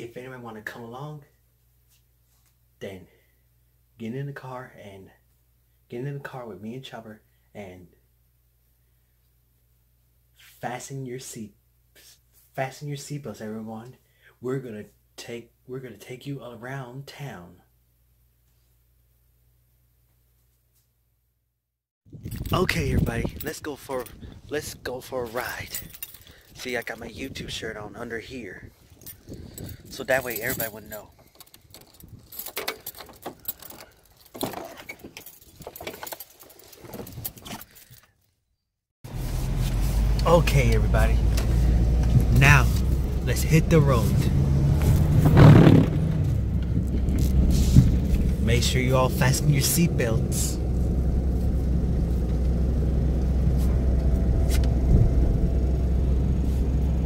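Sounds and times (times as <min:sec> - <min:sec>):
light jingling: 0:25.3 - 0:27.4, 0:28.7 - 0:38.0
car cabin rumble: 0:39.1 - 0:57.0.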